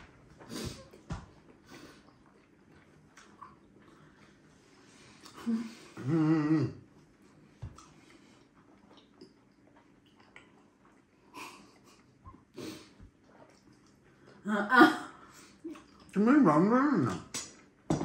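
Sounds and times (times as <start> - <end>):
person moaning: 5.4 - 6.8
breathy sniff: 12.6 - 13.0.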